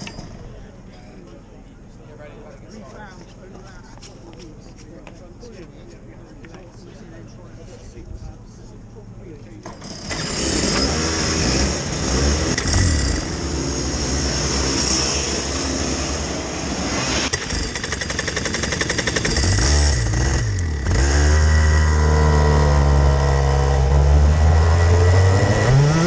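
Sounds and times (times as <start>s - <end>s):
kart engines idling: 0.0s - 25.8s
close engine running loud: 9.7s - 26.0s
engine revving: 9.8s - 26.0s.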